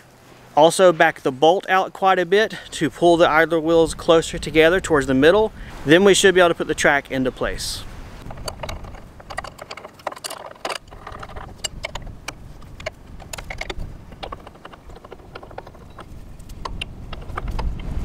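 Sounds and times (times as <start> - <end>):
wrenches clinking on metal: 8.2 - 17.8.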